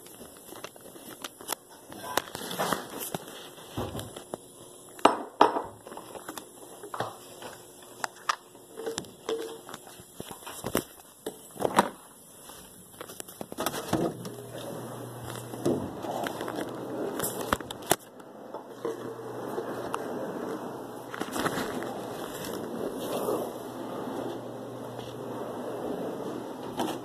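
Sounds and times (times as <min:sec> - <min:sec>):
rustling: 0:18.8 - 0:27.0.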